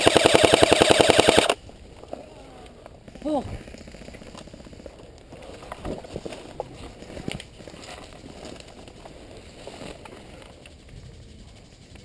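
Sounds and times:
footsteps through brush: 5.2s - 10.6s.

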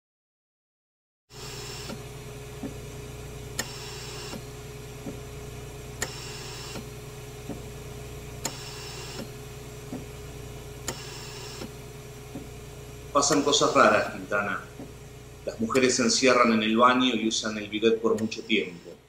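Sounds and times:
steady low hum: 1.3s - 19.0s
sharp mechanical click: 3.6s - 4.4s, 6.0s - 6.9s, 8.4s - 9.3s, 10.8s - 11.7s.

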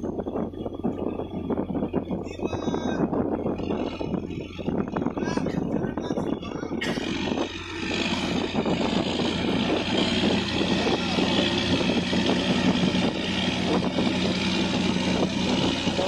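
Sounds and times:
boat engine rumbling: 0.0s - 16.0s.

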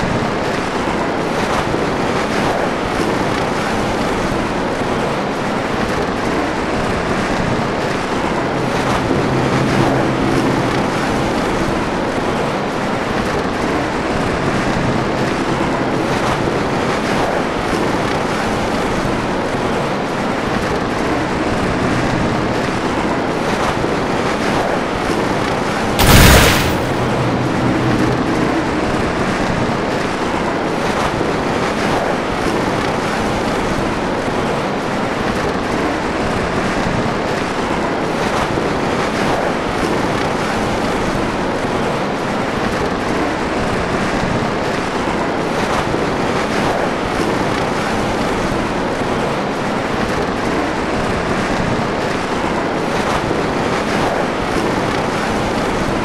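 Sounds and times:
blizzard wind blowing: 0.0s - 36.5s.

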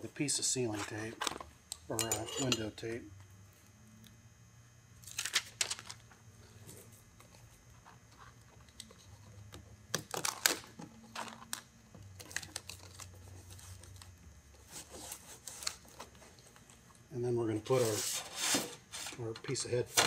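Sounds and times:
foil tape crinkling: 5.0s - 6.0s, 9.9s - 14.1s.

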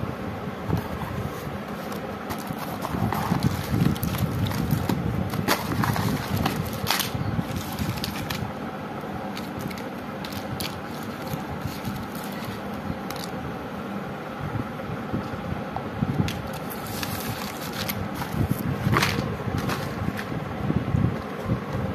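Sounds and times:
cardboard rustling: 0.7s - 8.5s, 9.3s - 13.3s, 16.3s - 20.4s
plastic wrap crinkling: 2.3s - 8.5s, 16.4s - 20.2s.

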